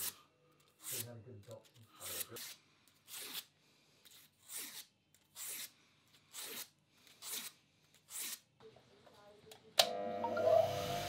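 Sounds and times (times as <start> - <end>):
sandpaper rasping on steel: 2.0 - 8.5.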